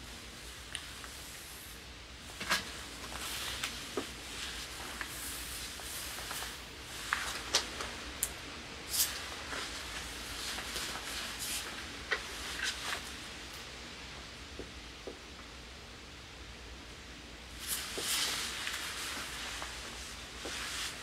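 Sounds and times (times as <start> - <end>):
low room noise: 0.0 - 21.0
clothing rustling: 2.3 - 8.1, 8.9 - 13.3, 17.6 - 21.0.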